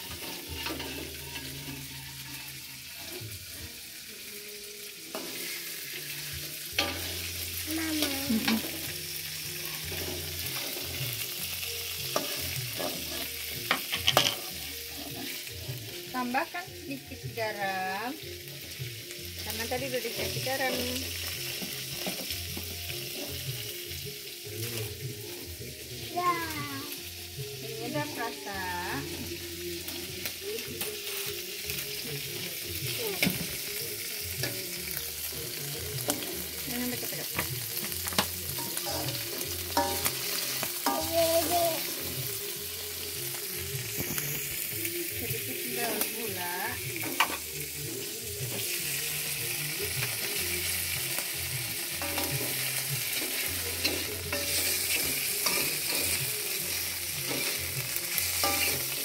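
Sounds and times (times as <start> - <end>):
spatula scraping a pan: 0.0 - 3.5, 5.1 - 7.6, 9.6 - 15.9, 37.4 - 42.2, 52.0 - 59.0
seafood sizzling in a wok: 0.0 - 59.0.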